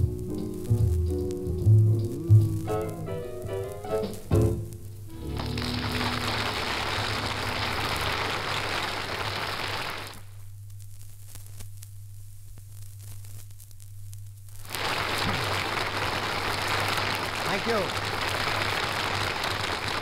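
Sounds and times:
record surface crackle: 0:00.0 - 0:20.0
audience applause: 0:05.1 - 0:10.2, 0:14.7 - 0:20.0.

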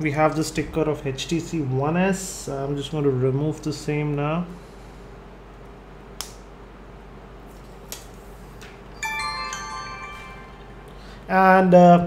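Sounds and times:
phone startup chime: 0:09.0 - 0:11.3.

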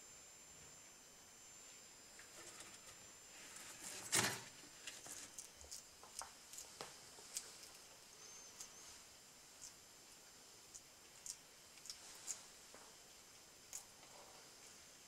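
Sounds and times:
chewing clicks: 0:10.7 - 0:12.4.

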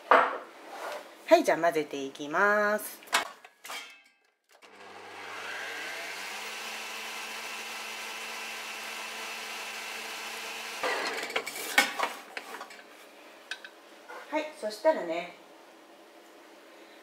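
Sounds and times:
stand mixer motor humming: 0:04.6 - 0:11.3.

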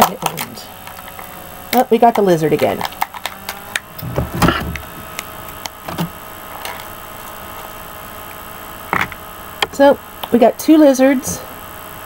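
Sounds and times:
faint electrical hum: 0:00.0 - 0:12.0
knock and rustle: 0:04.0 - 0:04.8.

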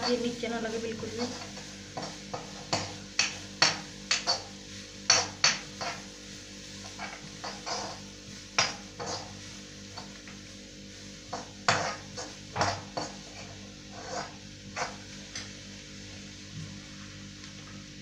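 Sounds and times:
metal spoon scraping a pan: 0:01.0 - 0:04.5, 0:05.1 - 0:06.2, 0:06.8 - 0:10.2, 0:11.3 - 0:15.1.

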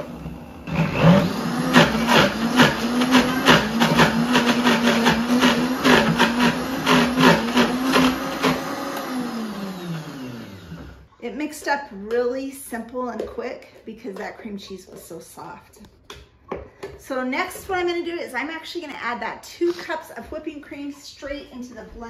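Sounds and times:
blender motor running: 0:00.0 - 0:11.1.

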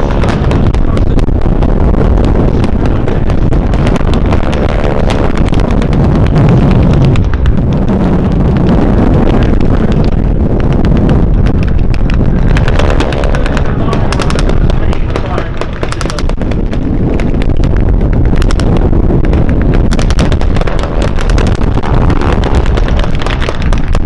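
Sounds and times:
propeller plane engine flying low: 0:00.0 - 0:24.0
wind buffeting microphone: 0:00.0 - 0:24.0
blank gunfire popping: 0:10.8 - 0:24.0.

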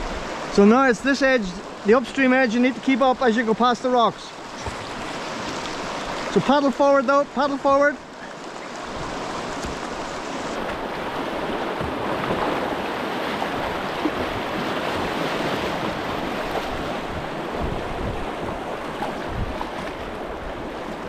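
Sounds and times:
rapid water rushing and splashing: 0:00.0 - 0:21.0
wind buffeting microphone: 0:08.8 - 0:21.0.

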